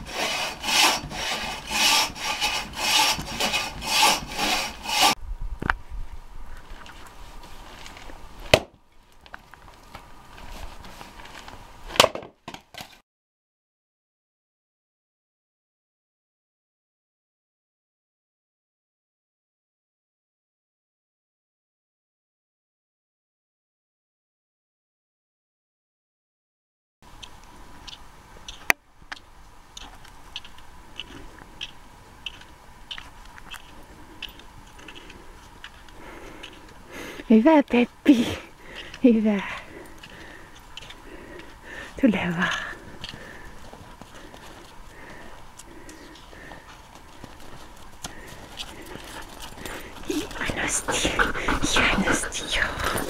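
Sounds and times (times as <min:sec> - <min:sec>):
snow crunching underfoot: 0:06.6 - 0:11.9
axe cracking into log: 0:08.4 - 0:08.8, 0:11.9 - 0:13.0.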